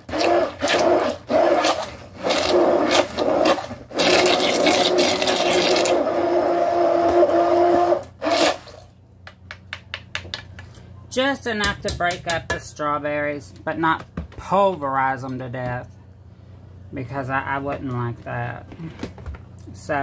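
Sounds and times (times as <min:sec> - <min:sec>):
immersion blender running: 0:00.0 - 0:08.8.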